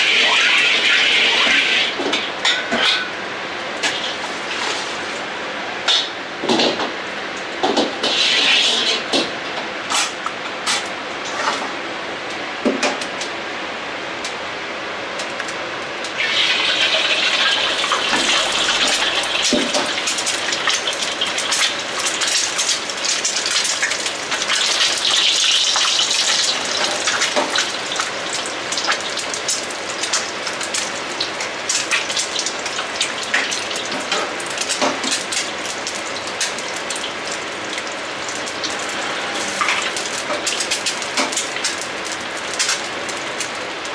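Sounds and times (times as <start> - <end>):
eggs sizzling in oil: 16.1 - 43.9.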